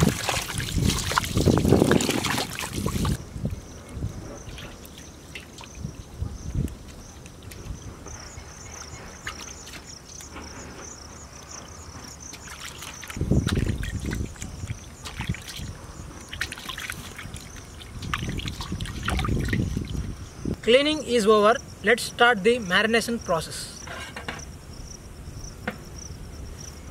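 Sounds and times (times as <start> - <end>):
water sloshing in steel bowl: 0.0 - 3.2, 12.3 - 20.1.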